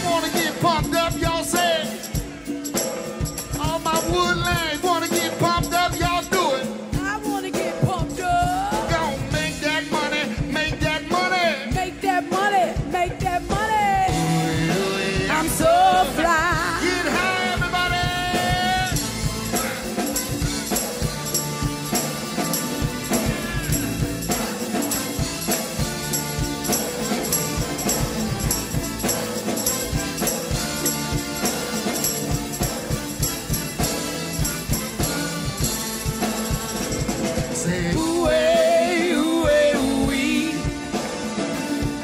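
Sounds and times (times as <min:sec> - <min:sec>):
live band with horn section: 0:00.0 - 0:42.0
person singing: 0:03.5 - 0:19.0, 0:36.4 - 0:40.9.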